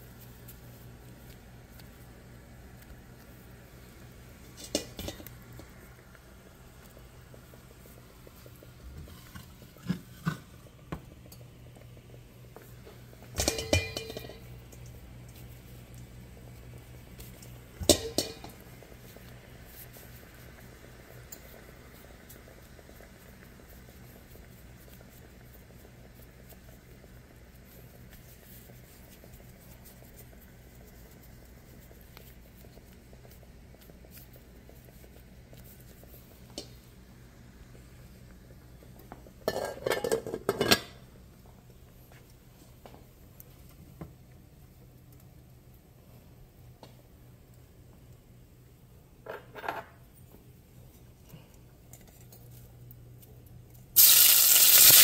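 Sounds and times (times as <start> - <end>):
low steady hum: 0.0 - 54.8
pot of water boiling: 0.0 - 55.0
metal cookware clattering: 4.6 - 5.3, 13.3 - 14.5, 17.8 - 18.6, 39.4 - 41.0
light knocks on cookware: 17.8 - 18.6.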